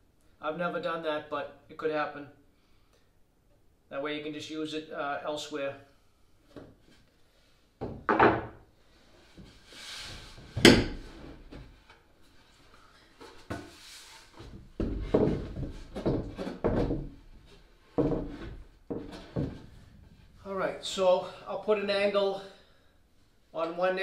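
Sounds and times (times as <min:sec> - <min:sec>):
wooden boards knocking: 0:07.8 - 0:08.6, 0:14.4 - 0:17.3
wood scraping: 0:09.0 - 0:20.5.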